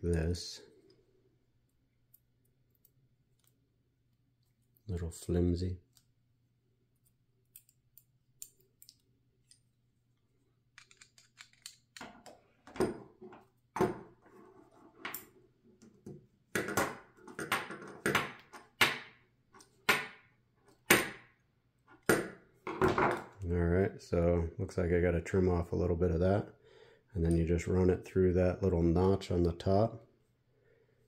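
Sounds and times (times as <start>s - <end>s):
screwdriver metallic clicks and scrapes: 10.8s - 12.1s.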